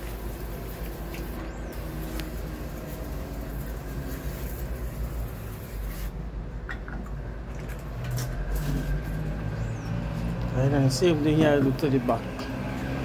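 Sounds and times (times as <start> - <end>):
sprayer hissing: 0.0 - 6.2.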